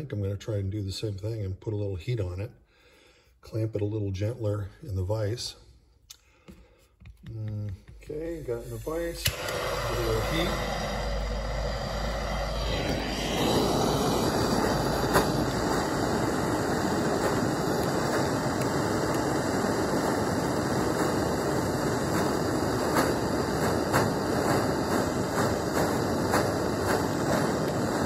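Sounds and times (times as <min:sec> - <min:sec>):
propane torch hissing: 0:07.9 - 0:28.0.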